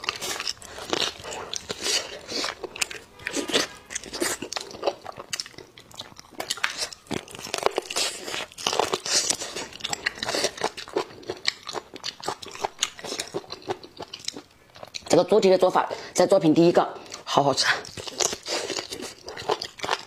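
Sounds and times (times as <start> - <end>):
person chewing food: 0.0 - 15.3, 17.0 - 20.0.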